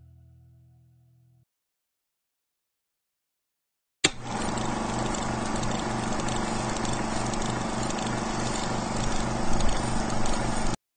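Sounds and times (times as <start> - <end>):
projector switch click: 4.0 - 4.3
film projector whirring: 4.1 - 10.8.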